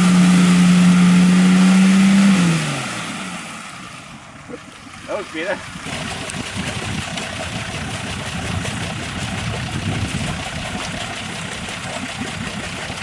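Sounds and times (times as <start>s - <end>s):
diesel engine idling: 3.4s - 10.1s.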